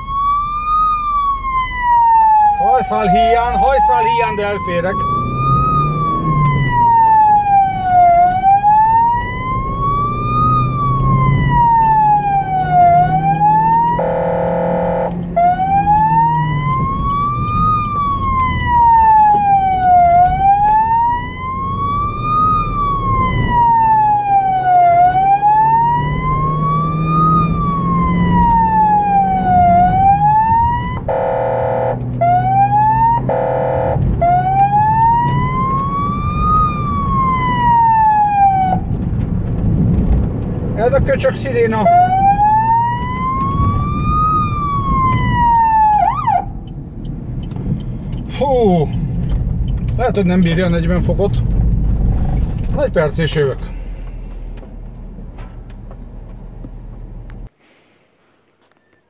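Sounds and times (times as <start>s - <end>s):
siren wailing: 0.0s - 39.1s, 41.7s - 47.0s
horn blasts: 13.9s - 15.2s, 31.0s - 32.1s, 33.2s - 34.1s.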